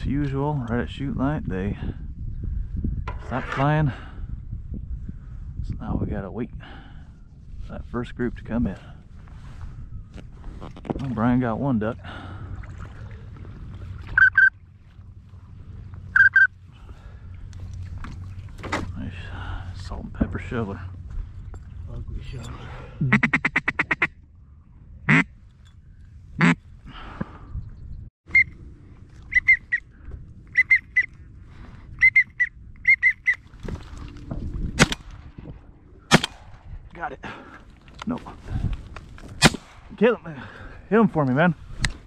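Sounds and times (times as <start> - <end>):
low background rumble: 0.0 - 42.0
high whistle call notes: 29.3 - 29.9, 30.5 - 31.2, 32.0 - 33.4
loud shotgun shot: 34.8 - 35.1, 36.1 - 36.7, 39.4 - 40.0.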